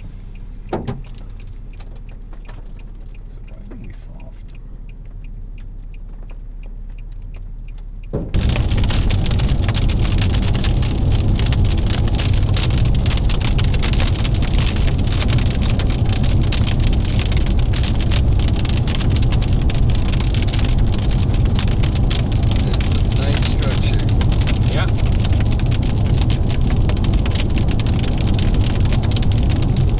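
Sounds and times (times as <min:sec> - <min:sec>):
low rumble: 0:00.0 - 0:29.9
heavy rain on vehicle roof: 0:08.3 - 0:29.9.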